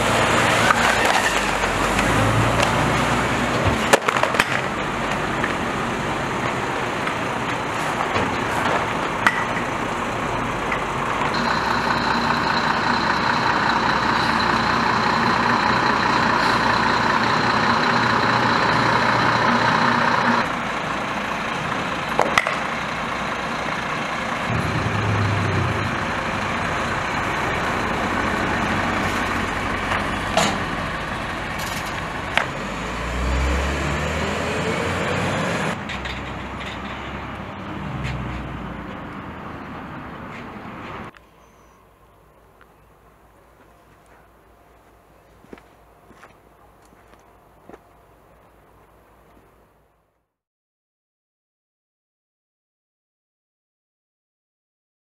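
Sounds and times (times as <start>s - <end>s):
diesel truck engines running: 0.0s - 41.1s.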